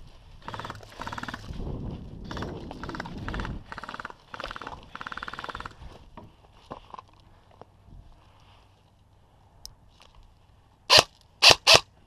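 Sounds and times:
airsoft rifle full-auto bursts: 0.4 - 1.4, 2.3 - 5.8, 10.9 - 11.9.

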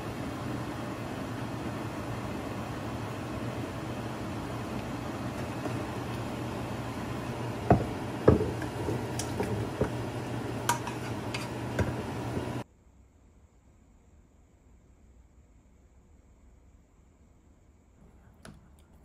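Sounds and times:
stove hum and hiss: 0.0 - 19.0
spoon and pan clinking on pots: 7.7 - 10.0, 10.6 - 12.0.

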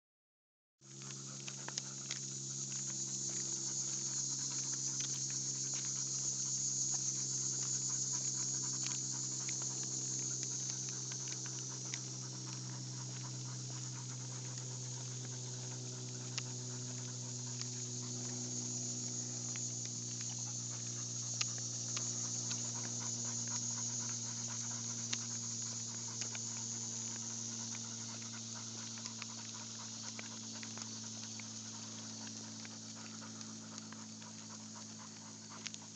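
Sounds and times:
dogs panting: 0.8 - 35.9
light ticks: 0.9 - 35.9
steady low hum: 0.9 - 35.9.

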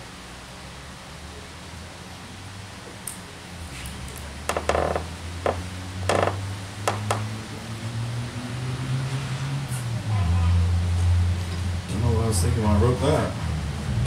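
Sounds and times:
sharp noises on microphone: 3.6 - 7.6.

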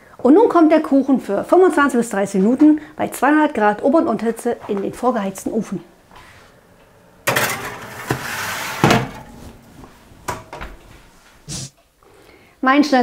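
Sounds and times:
oven door shutting: 7.3 - 9.6
baking tray scraping on oven runners: 7.3 - 9.7.

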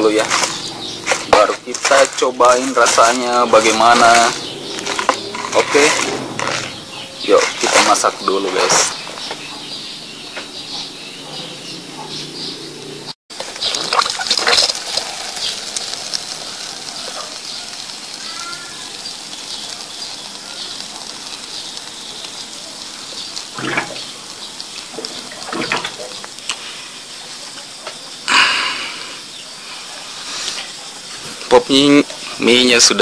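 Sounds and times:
paper cup rustling and knocking: 0.0 - 9.1, 13.3 - 26.3
water pouring into cup: 13.4 - 21.5.

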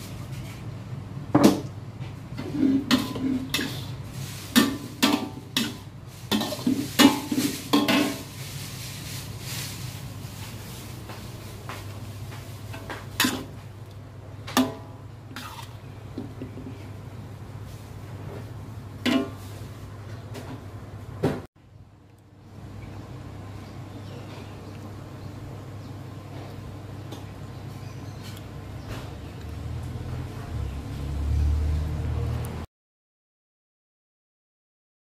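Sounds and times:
spatula scraping and clanging wok: 2.3 - 9.8, 12.2 - 13.8, 14.4 - 17.0, 17.6 - 19.7.

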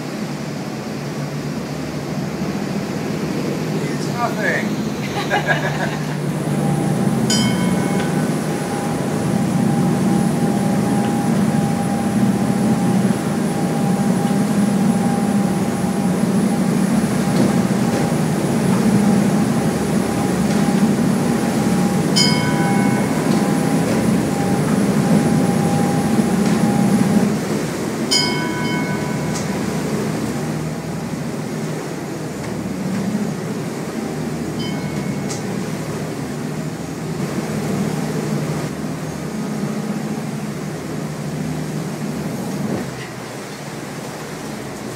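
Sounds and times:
choppy water against hull: 0.0 - 44.9
motorboat engine drone: 0.0 - 44.9
short ringing clinks: 22.2 - 23.5, 28.1 - 29.6.

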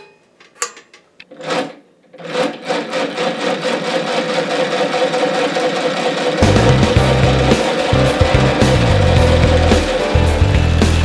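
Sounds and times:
engine mechanical clatter: 3.2 - 10.0.

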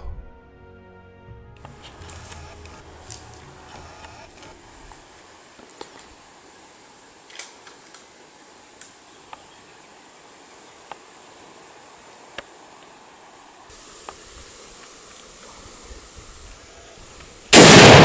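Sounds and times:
faint high hiss: 1.6 - 18.0.

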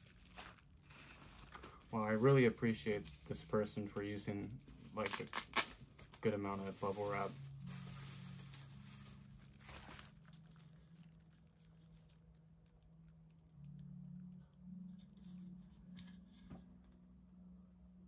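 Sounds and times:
bubble wrap crinkling: 0.0 - 13.8
low steady hum: 0.0 - 18.0.

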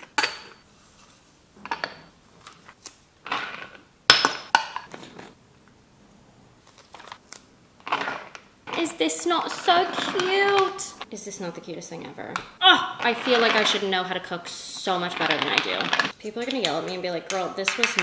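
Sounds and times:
glass jars clinking: 0.0 - 0.6.

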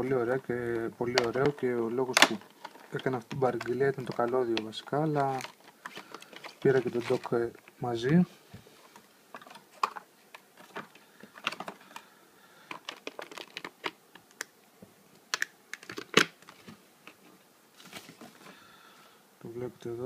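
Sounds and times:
plastic packaging crackling: 0.0 - 8.2, 9.3 - 14.5, 15.3 - 17.2
cable being handled: 0.3 - 8.2, 8.8 - 14.5, 15.2 - 18.6.

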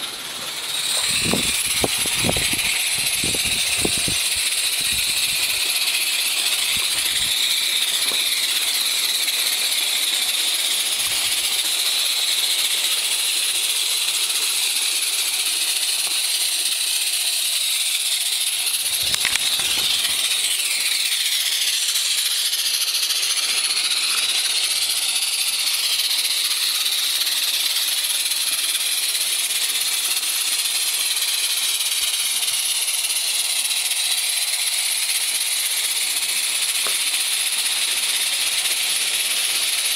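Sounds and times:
steam locomotives hissing: 0.0 - 39.9.

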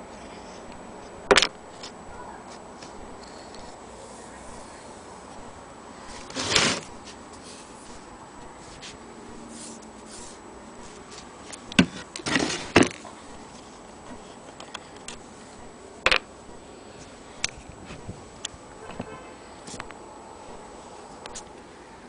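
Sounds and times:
rubbing scrapes: 6.0 - 11.3.

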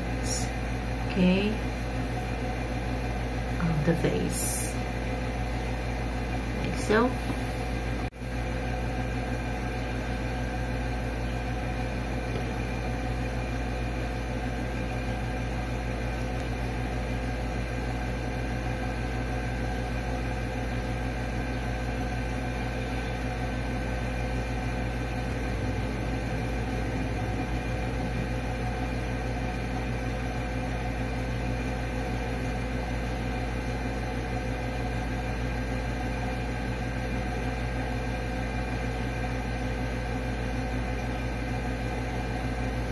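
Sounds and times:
steady mechanical hum: 0.0 - 42.9.

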